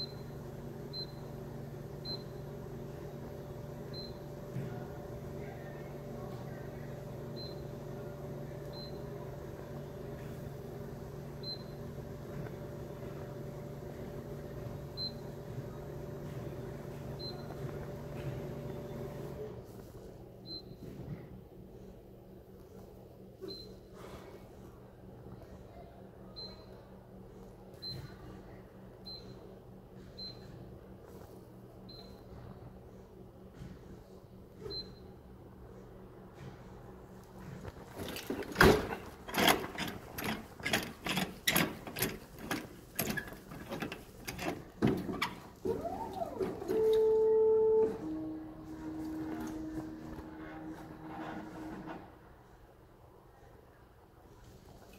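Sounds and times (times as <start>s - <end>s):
vending machine low hum: 0.0s - 54.9s
machine humming: 44.4s - 52.1s.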